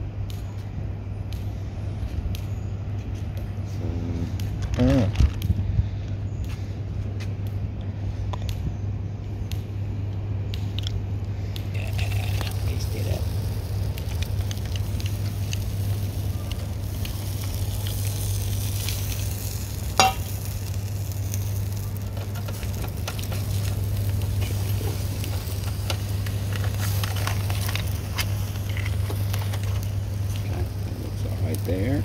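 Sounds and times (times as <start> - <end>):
low hum: 0.0 - 32.0
food sizzling and crackling on a grill: 11.6 - 32.0.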